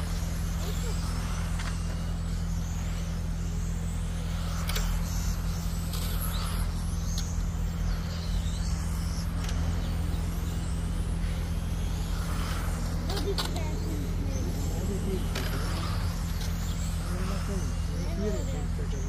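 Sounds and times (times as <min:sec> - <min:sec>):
model car motors whining: 0:00.0 - 0:19.0
steady low hum: 0:00.0 - 0:19.0
sharp clicks: 0:04.6 - 0:05.0.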